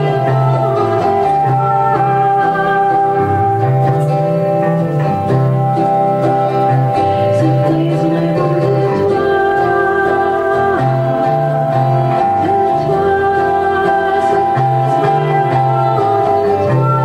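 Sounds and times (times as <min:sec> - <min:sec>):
indie pop band music: 0:00.0 - 0:17.0.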